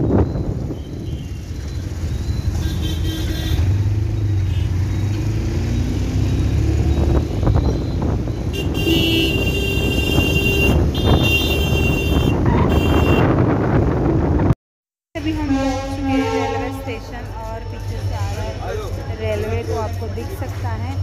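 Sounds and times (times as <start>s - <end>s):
engine and road rumble: 0.0s - 21.0s
vehicle horns honking: 0.7s - 1.5s, 2.5s - 4.8s, 8.4s - 13.4s, 15.3s - 17.0s.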